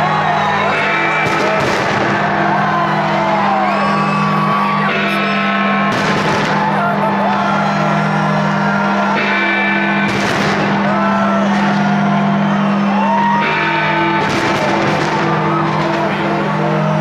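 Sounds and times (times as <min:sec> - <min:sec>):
loud music: 0:00.0 - 0:17.0
people whooping and shouting: 0:00.0 - 0:17.0
fireworks bursts: 0:01.1 - 0:02.6, 0:05.8 - 0:07.2, 0:10.0 - 0:11.1, 0:14.2 - 0:16.8.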